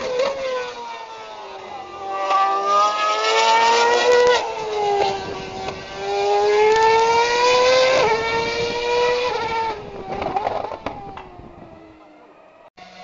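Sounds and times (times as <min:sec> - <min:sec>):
race car engine at full throttle: 0:00.0 - 0:13.0.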